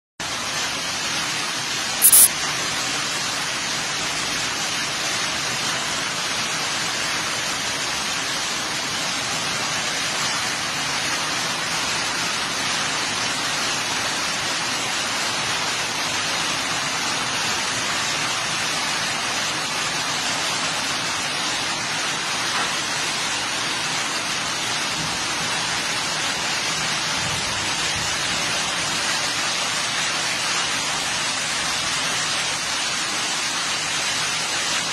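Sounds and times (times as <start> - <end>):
heavy rain on grass and leaves: 0.2 - 34.9
sharp high-pitched click: 2.0 - 2.3.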